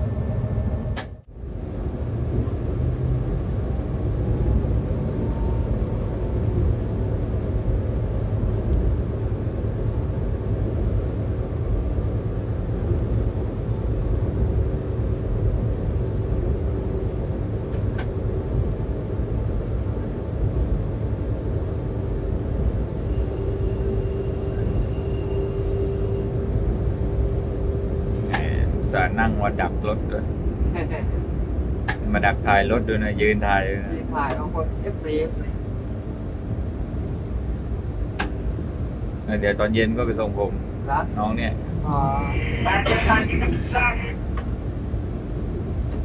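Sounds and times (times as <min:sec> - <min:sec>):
diesel locomotive rumble: 0:00.0 - 0:46.0
faint steady hum: 0:02.9 - 0:46.0
sharp click: 0:28.2 - 0:28.5, 0:38.2 - 0:38.4.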